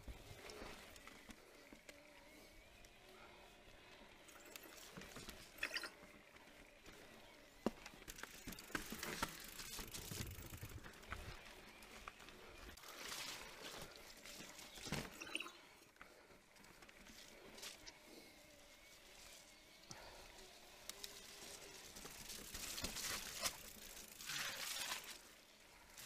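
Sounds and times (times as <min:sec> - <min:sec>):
bike rattling and knocking: 0:08.1 - 0:11.2.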